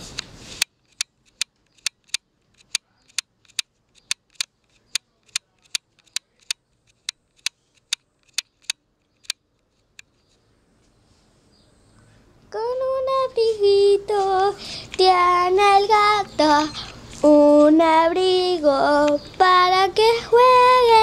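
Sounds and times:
sharp clicks: 0:00.2 - 0:10.4, 0:18.6 - 0:19.5.

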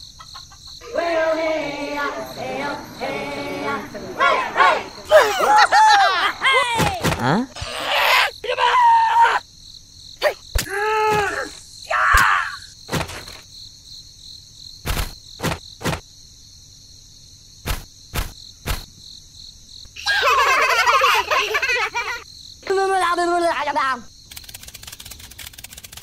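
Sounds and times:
insect chirping: 0:00.0 - 0:26.0
jumbled chatter: 0:00.8 - 0:05.1
squeaky cartoon voices: 0:04.2 - 0:09.4.

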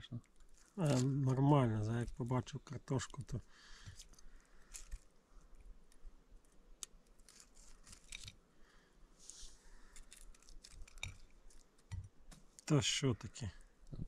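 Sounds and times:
soft rustles: 0:03.7 - 0:08.4, 0:09.2 - 0:12.7.

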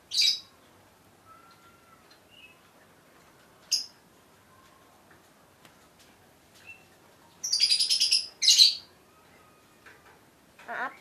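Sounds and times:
bird chirping: 0:00.0 - 0:03.0, 0:03.7 - 0:04.0, 0:06.6 - 0:09.8.

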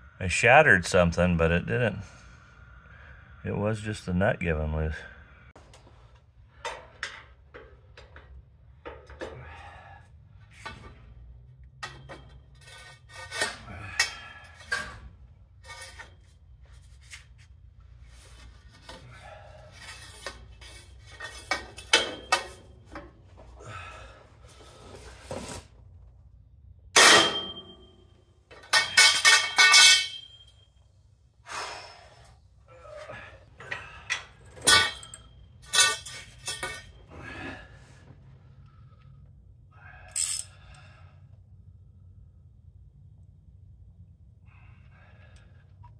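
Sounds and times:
hand tools clinking on metal: 0:21.1 - 0:22.7, 0:28.5 - 0:30.6, 0:33.7 - 0:37.0, 0:40.1 - 0:40.5
loud ringing metal clangs: 0:27.0 - 0:28.1.

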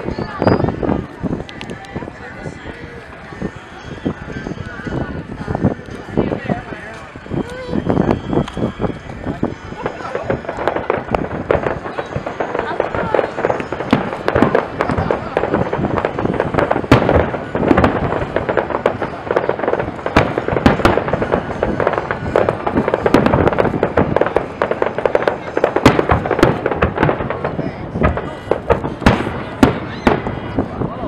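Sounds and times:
loud firework booms: 0:00.0 - 0:02.1, 0:07.8 - 0:31.0
firework shells bursting and crackling: 0:00.0 - 0:31.0.

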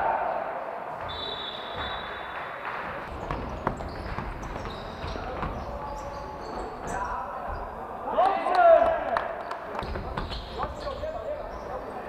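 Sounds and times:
reverberant hall noise: 0:00.0 - 0:12.0
sneaker squeaks: 0:01.0 - 0:02.4, 0:03.1 - 0:08.0, 0:09.7 - 0:12.0
ball bouncing on court: 0:03.0 - 0:06.2, 0:09.8 - 0:10.9.

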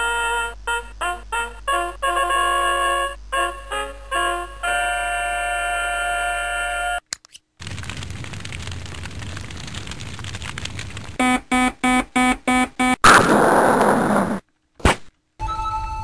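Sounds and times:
electronic alarm beeping: 0:11.2 - 0:13.0.

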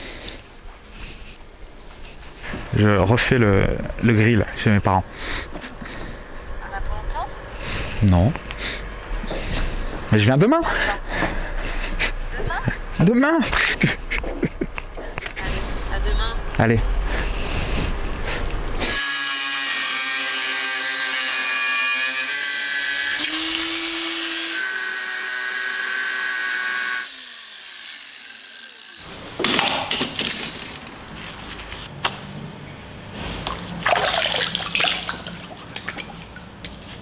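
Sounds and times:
angle grinder cutting brick: 0:18.8 - 0:29.1.

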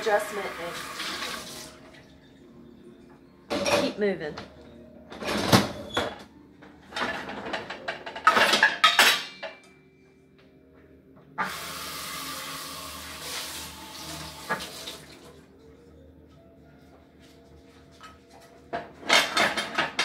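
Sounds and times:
kitchen faucet running: 0:00.0 - 0:02.0, 0:11.4 - 0:15.4
water splashing in sink: 0:00.0 - 0:02.0, 0:11.4 - 0:15.4.

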